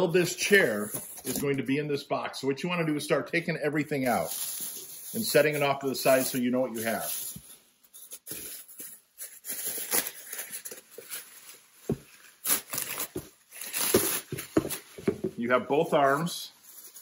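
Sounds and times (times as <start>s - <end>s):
plastic wrapping crinkling: 4.0s - 17.0s.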